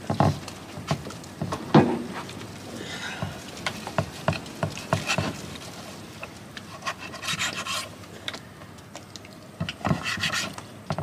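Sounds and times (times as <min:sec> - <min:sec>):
blade scraping wood: 0:03.7 - 0:05.7, 0:06.7 - 0:08.0, 0:09.6 - 0:11.0.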